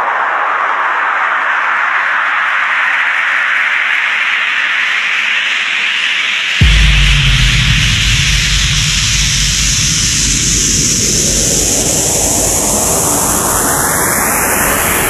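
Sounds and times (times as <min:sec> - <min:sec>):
low pulsing bass: 0:06.6 - 0:14.3
rising whoosh sweep: 0:06.6 - 0:15.0.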